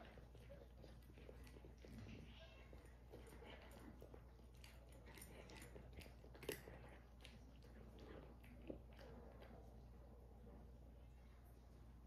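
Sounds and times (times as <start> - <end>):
cat crunching kibble: 0.0 - 9.8.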